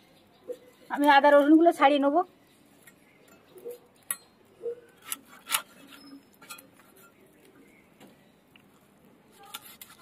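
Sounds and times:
soft handling noise: 4.9s - 10.0s.

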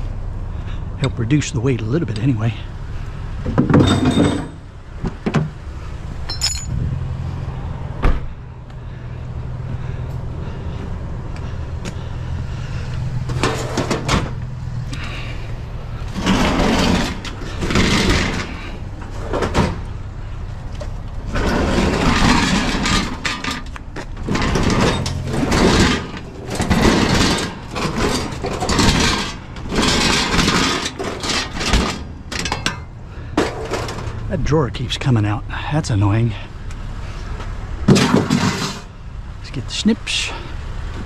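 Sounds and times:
truck engine idling: 0.0s - 41.0s
metal and glass clattering and scraping: 3.4s - 5.6s, 6.2s - 6.8s, 13.2s - 14.4s, 15.0s - 34.5s, 37.4s - 38.9s.

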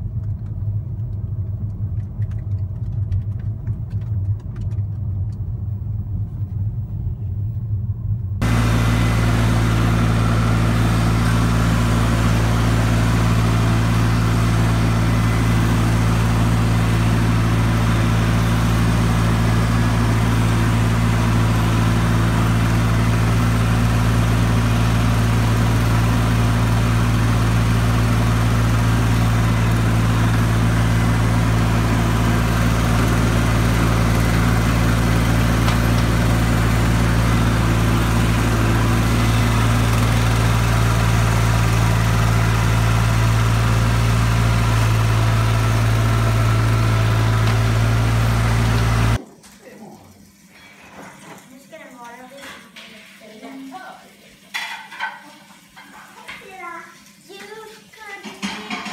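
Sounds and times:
garden tractor engine running: 8.4s - 49.2s.

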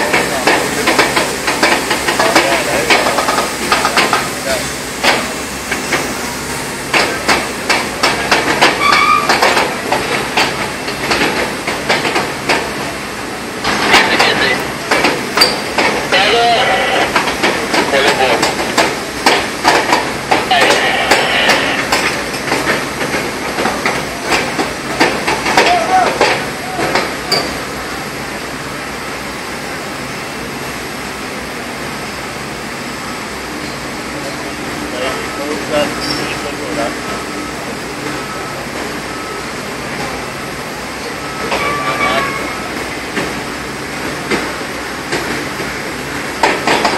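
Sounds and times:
machinery hiss: 0.3s - 8.5s
heavy machinery running: 13.6s - 27.3s
high metallic squeal: 41.3s - 42.7s.

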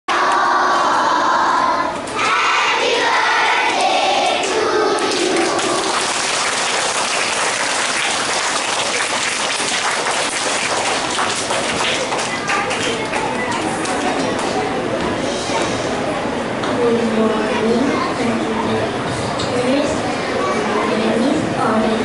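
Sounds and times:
children singing together: 0.1s - 6.4s
applause: 4.4s - 14.5s.

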